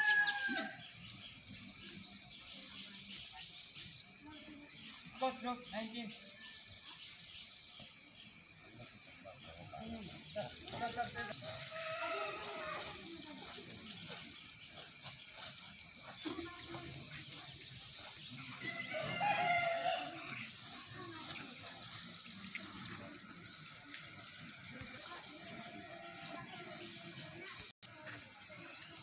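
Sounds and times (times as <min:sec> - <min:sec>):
rooster crowing: 0:00.0 - 0:00.9, 0:11.5 - 0:12.9, 0:18.6 - 0:20.4.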